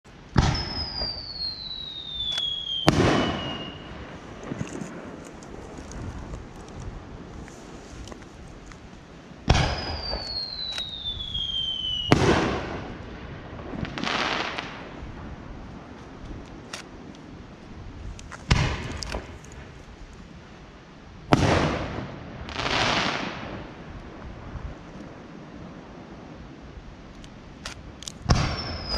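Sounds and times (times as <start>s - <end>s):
fireworks bursting: 0.2s - 19.9s, 21.3s - 25.2s, 27.7s - 28.9s
falling whistle: 0.5s - 4.0s, 9.7s - 12.2s.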